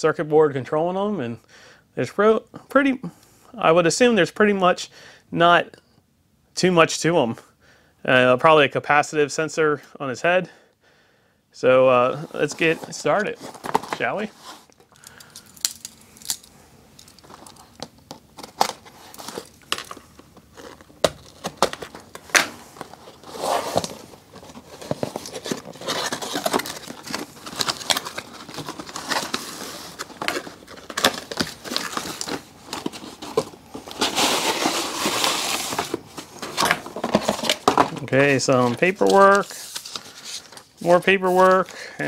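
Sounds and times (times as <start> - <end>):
cardboard box being opened: 12.1 - 14.7, 17.3 - 40.7
packaging crinkling and rustling: 12.1 - 42.0.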